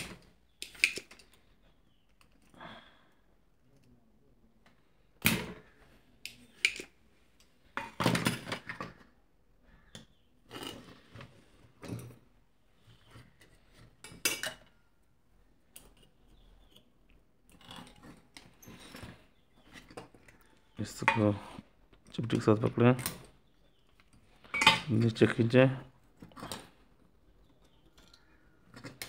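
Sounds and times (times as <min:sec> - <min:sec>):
components and tools clattering: 0:00.0 - 0:02.6, 0:04.6 - 0:09.2, 0:15.6 - 0:29.0.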